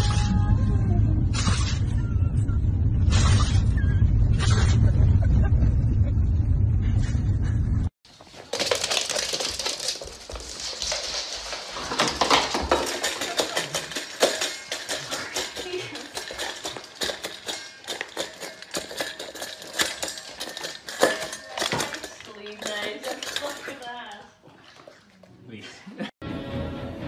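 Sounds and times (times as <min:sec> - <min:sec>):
dog eating from steel bowl: 0:08.1 - 0:25.4.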